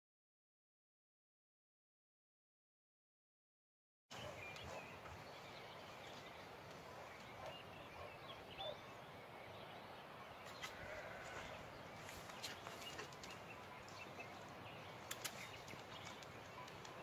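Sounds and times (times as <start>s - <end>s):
faint outdoor background hiss: 4.1s - 17.0s
sharp clicks: 15.0s - 17.0s.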